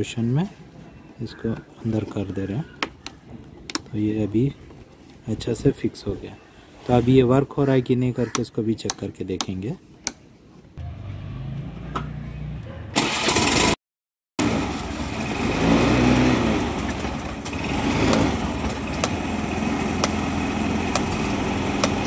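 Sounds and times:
scooter engine starting and idling: 12.9s - 13.8s, 14.4s - 22.0s.

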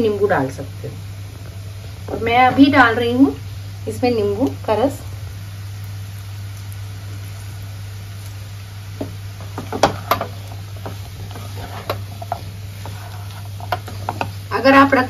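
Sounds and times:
spatula knocking against pan: 9.0s - 11.0s
spatula scraping a frying pan: 9.4s - 14.6s.

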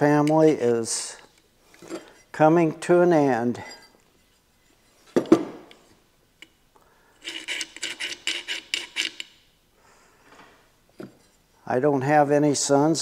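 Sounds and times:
metal parts scraping: 7.2s - 9.3s.

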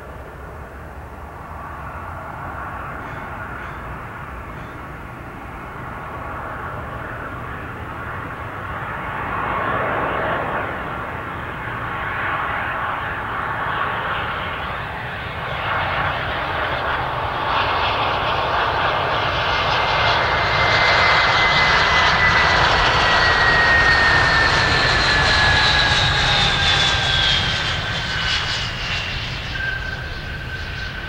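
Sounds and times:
jet engines passing by: 0.0s - 31.0s
high engine whine falling in pitch: 21.4s - 31.0s.

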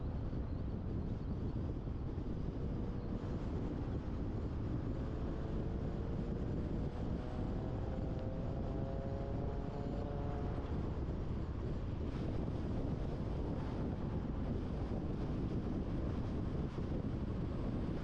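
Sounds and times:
road and tyre rumble: 0.0s - 18.0s
wind noise: 0.0s - 18.0s.

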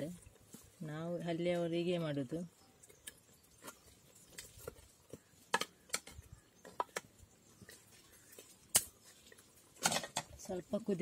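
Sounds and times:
ladle stirring thick curry: 2.5s - 10.4s.

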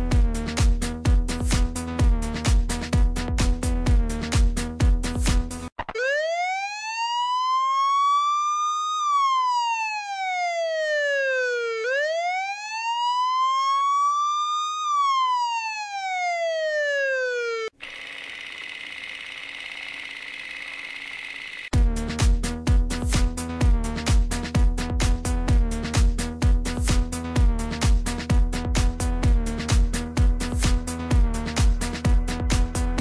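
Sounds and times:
siren wailing: 5.8s - 21.8s.

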